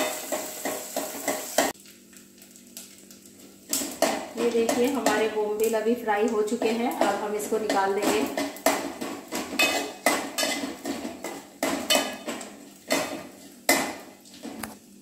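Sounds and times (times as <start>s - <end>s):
metal spoon scraping a pan: 0.0s - 1.8s, 7.0s - 14.6s.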